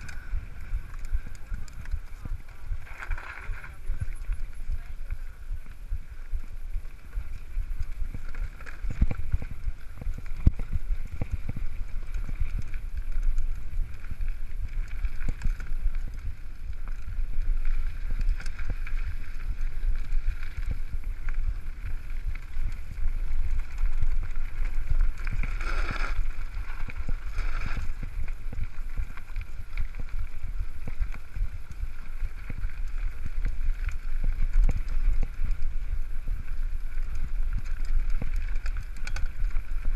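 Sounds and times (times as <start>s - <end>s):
mountain bike rumbling on dirt trail: 0.0s - 39.9s
wind buffeting microphone: 0.0s - 39.9s.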